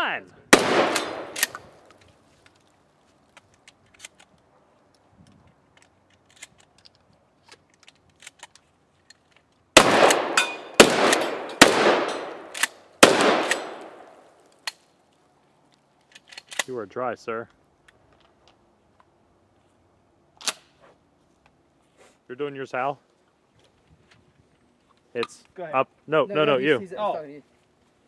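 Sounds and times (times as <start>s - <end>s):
shotgun shots with echo: 0.5s - 1.6s, 9.8s - 14.2s
sharp click: 1.0s - 1.7s.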